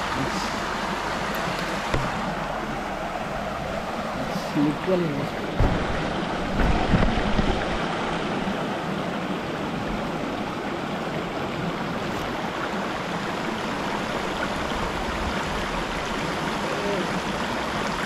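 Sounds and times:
stream rushing over rocks: 0:00.0 - 0:18.0
low knocks: 0:01.9 - 0:02.3, 0:05.4 - 0:07.9.

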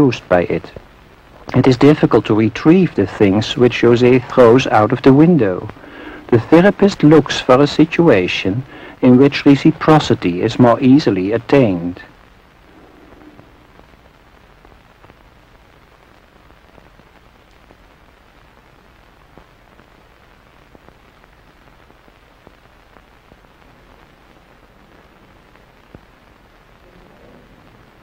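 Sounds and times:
old film surface hiss: 0:00.0 - 0:28.0
faint clicks and crackles: 0:00.6 - 0:08.0, 0:11.3 - 0:28.0.

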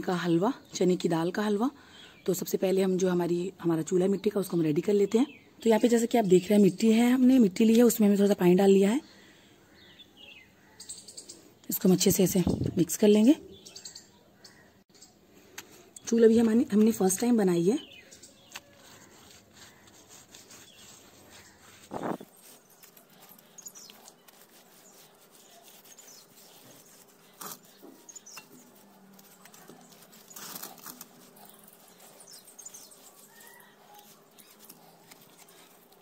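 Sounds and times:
bird chirps: 0:13.5 - 0:15.2, 0:17.7 - 0:30.5
damp cloth rubbing plaster: 0:16.4 - 0:36.0.

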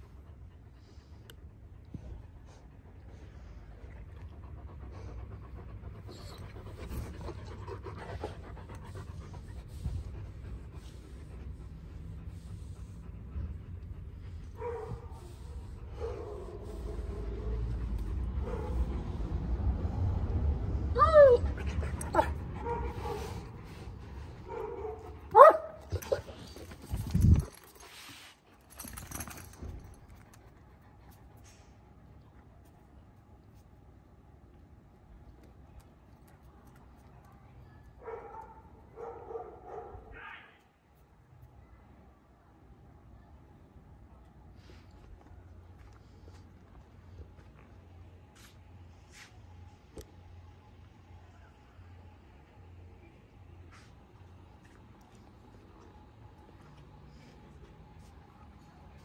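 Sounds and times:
dog panting: 0:00.0 - 0:19.9, 0:21.6 - 0:31.8
dog yelping: 0:21.0 - 0:21.5.

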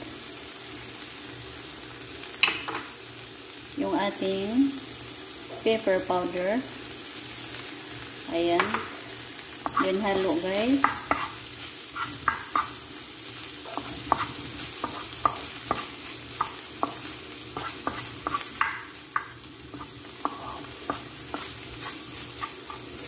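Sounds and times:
frying sizzle: 0:00.0 - 0:23.0
spatula knocking and scraping pan: 0:08.5 - 0:09.0, 0:09.6 - 0:12.8, 0:13.6 - 0:23.0.

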